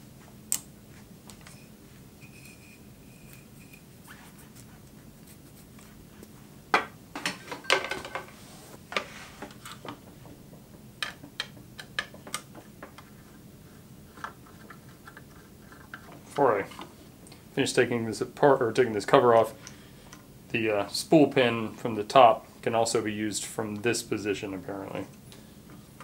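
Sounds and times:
tools clattering on a worktable: 6.7s - 10.4s.

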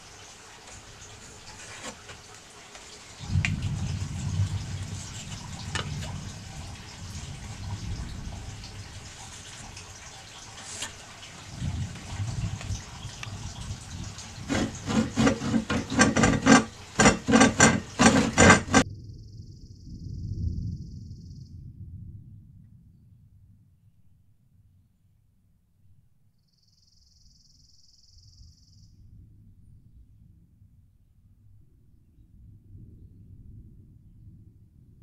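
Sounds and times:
handsaw cutting wood: 1.4s - 2.2s, 10.6s - 11.0s, 14.2s - 18.8s
low rumble: 3.3s - 9.4s, 18.7s - 24.0s.

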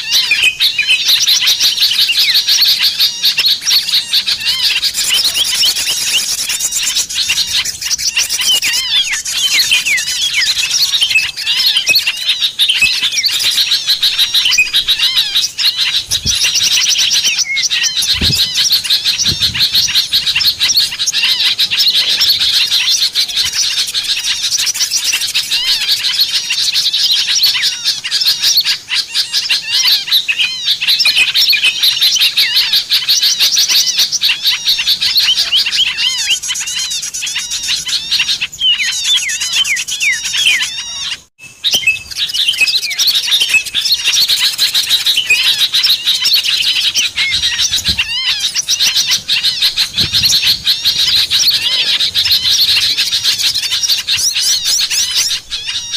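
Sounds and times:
songbirds chirping and whistling: 0.0s - 55.9s.

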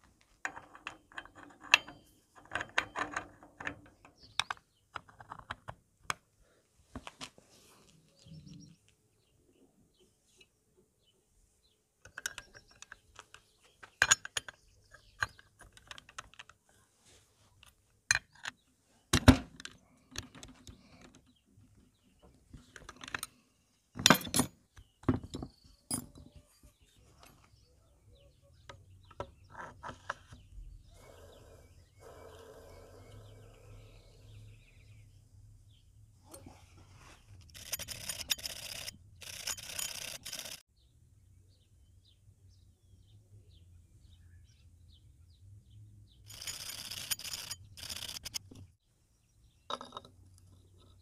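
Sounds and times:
steel tools clinking on metal: 0.5s - 4.3s.

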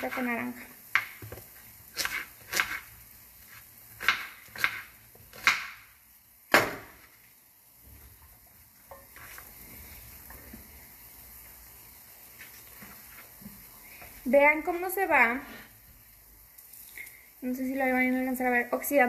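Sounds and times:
knife chopping on plastic board: 4.0s - 5.8s, 6.5s - 7.0s.

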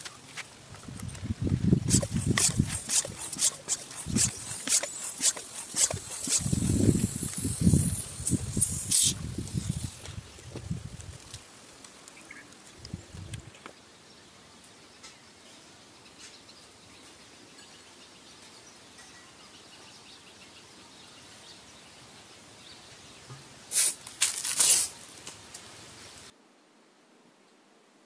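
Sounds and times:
water rocket rushing hiss: 1.4s - 10.5s, 23.7s - 26.3s
birds: 11.7s - 23.6s.

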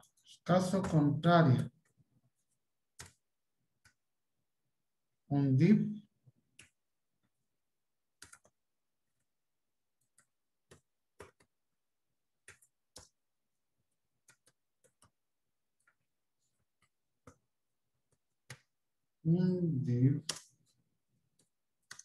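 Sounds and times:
keyboard typing clicks: 8.2s - 8.6s, 21.4s - 22.0s.

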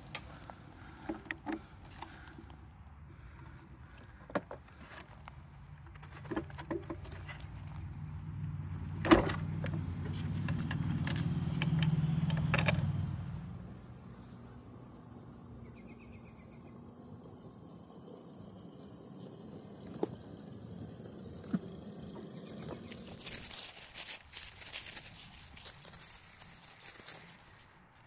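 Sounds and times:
miniature train rumble: 8.8s - 27.6s
metal coupler and chain clanking: 8.9s - 12.9s.

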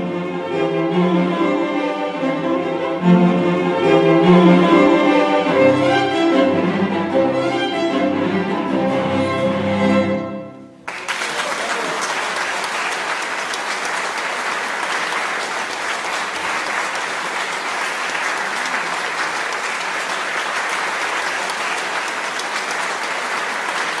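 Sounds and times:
audience applauding: 10.8s - 24.0s.

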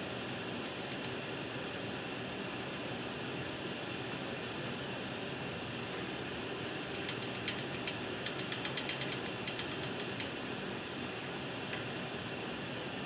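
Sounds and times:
wire connector ratcheting clicks: 0.6s - 1.1s, 6.9s - 10.3s.

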